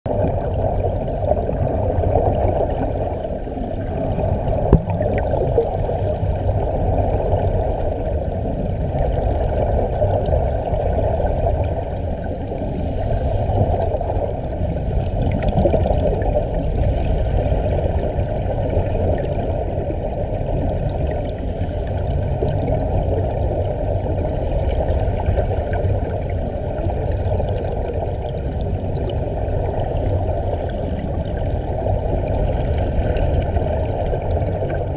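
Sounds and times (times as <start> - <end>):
muffled underwater rush: 0.1 - 34.9.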